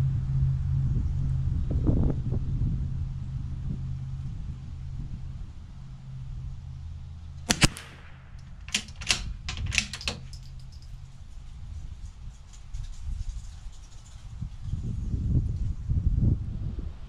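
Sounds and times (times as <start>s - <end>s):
rifle shot: 7.5s - 9.9s
metallic clicks of rifle action: 7.5s - 10.9s.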